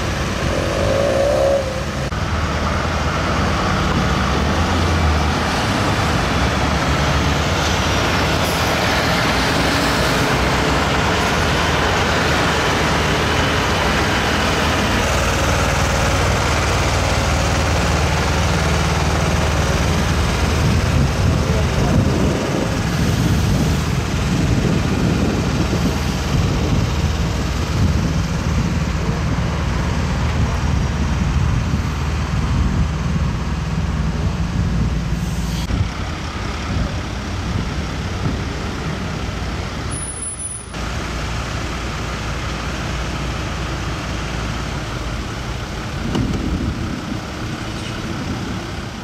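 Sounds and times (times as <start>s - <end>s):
diesel truck engine droning: 0.0s - 49.0s
tyre and chassis rumble: 0.0s - 49.0s.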